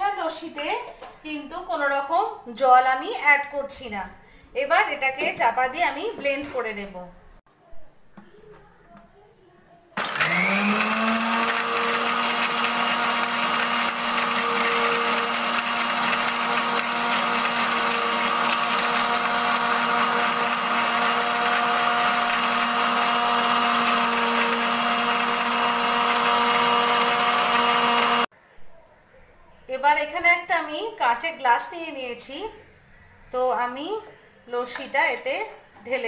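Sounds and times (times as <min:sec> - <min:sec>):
mixer grinder motor whining: 0:10.0 - 0:28.3.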